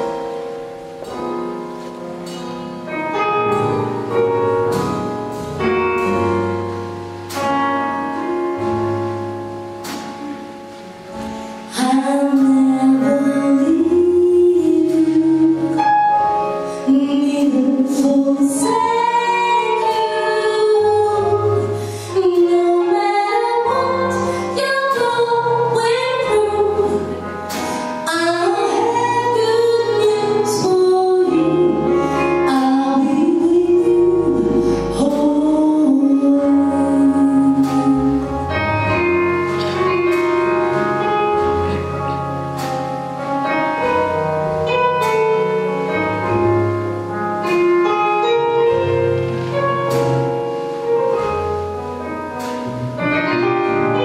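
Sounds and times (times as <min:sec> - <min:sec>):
keyboard chords: 0:00.0 - 0:54.0
sustained bass notes: 0:00.0 - 0:54.0
woman singing: 0:11.7 - 0:16.2, 0:16.8 - 0:38.4.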